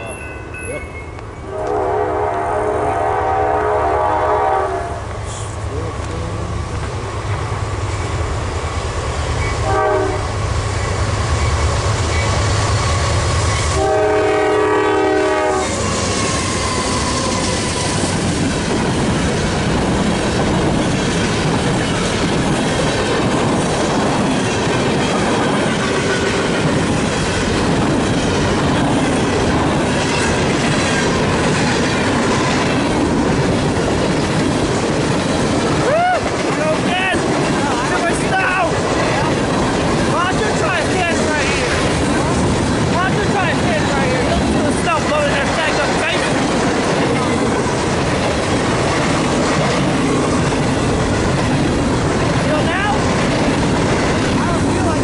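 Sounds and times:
diesel locomotives rumbling: 0:00.0 - 0:55.0
train horn: 0:01.4 - 0:05.1, 0:09.4 - 0:10.4, 0:13.7 - 0:17.6
freight cars clickety-clack: 0:15.7 - 0:55.0.

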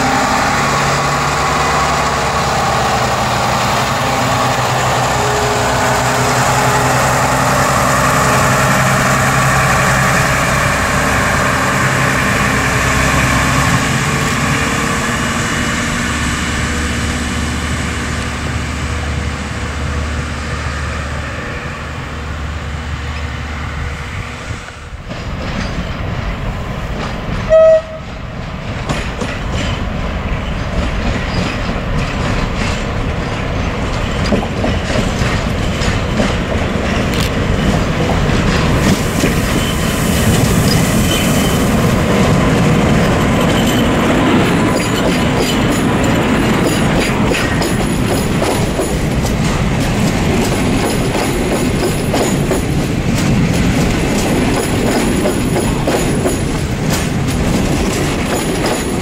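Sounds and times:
diesel railcar engine running: 0:00.0 - 0:59.0
freight train rumble and wheel clatter: 0:00.0 - 0:59.0
locomotive horn blast: 0:27.5 - 0:28.1.

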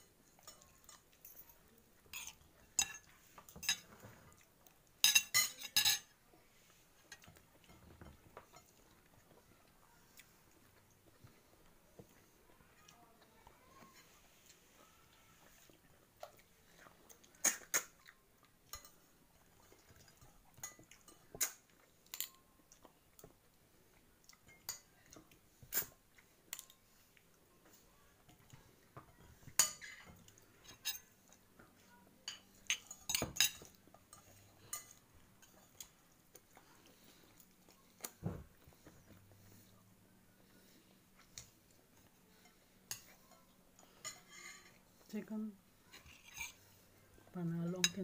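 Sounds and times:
cutlery clinking on a plate: 0:00.4 - 0:04.4, 0:05.0 - 0:06.1, 0:19.8 - 0:22.4, 0:28.4 - 0:31.4, 0:32.2 - 0:35.9, 0:42.4 - 0:44.8, 0:45.9 - 0:46.6
chewing: 0:06.9 - 0:45.1.

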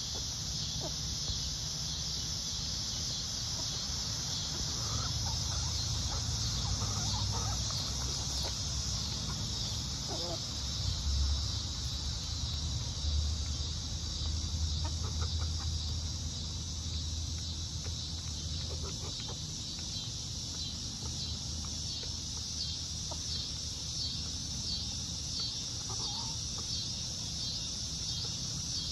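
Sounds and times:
steady high-pitched hiss: 0:00.0 - 0:28.9
hens clucking: 0:03.5 - 0:10.7, 0:14.7 - 0:16.0, 0:18.2 - 0:19.9, 0:25.7 - 0:26.7.

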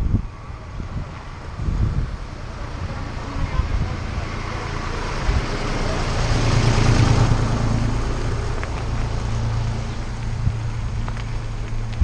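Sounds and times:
tractor diesel engine humming: 0:00.0 - 0:12.0
wind noise on microphone: 0:00.0 - 0:12.0.

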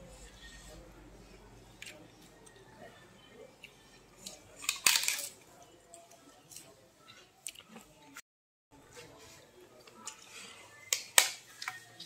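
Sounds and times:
crackers being crunched: 0:04.2 - 0:05.4.

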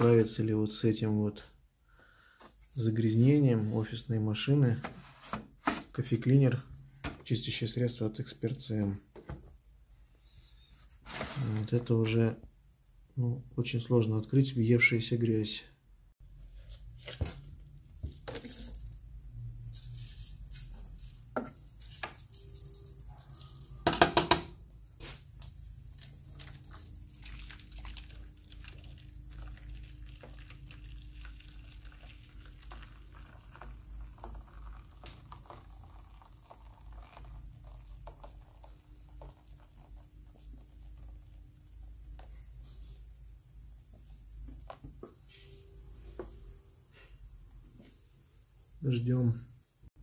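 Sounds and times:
cleaning solution fizzing: 0:25.9 - 0:38.4.

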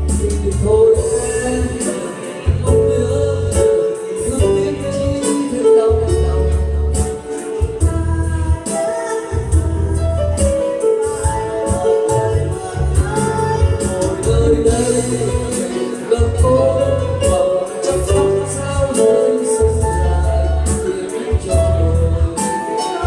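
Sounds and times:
electronic keyboard with beat: 0:00.0 - 0:23.0
man and woman singing duet: 0:00.0 - 0:23.0.

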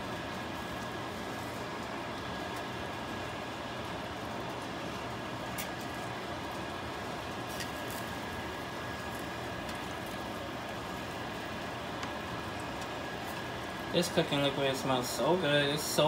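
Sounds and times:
mechanical hum with high whine: 0:00.0 - 0:16.0.

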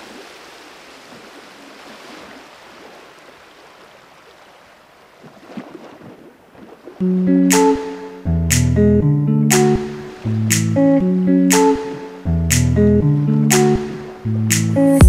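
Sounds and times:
loud guitar music: 0:07.0 - 0:15.0.

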